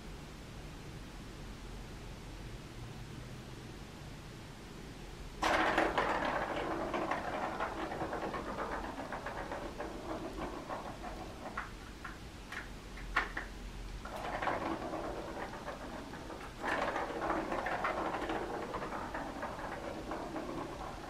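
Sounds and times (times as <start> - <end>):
plastic ball rolling on track: 5.4 - 21.0.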